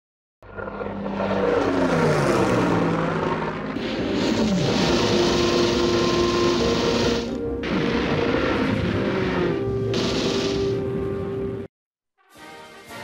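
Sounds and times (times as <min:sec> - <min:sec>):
propeller aircraft flying past: 0:00.4 - 0:07.4.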